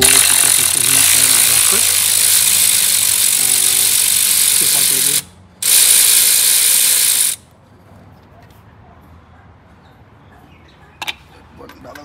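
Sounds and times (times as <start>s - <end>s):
cordless electric ratchet running: 0.0s - 7.4s.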